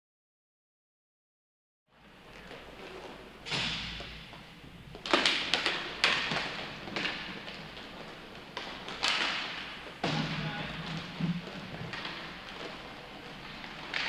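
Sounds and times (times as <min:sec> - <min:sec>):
puck and sticks knocking: 0:05.0 - 0:14.0.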